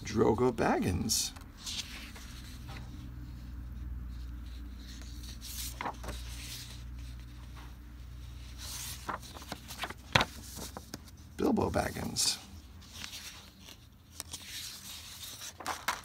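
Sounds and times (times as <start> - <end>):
steady low hum: 0.0 - 16.0
card sheets rustling: 4.1 - 16.0.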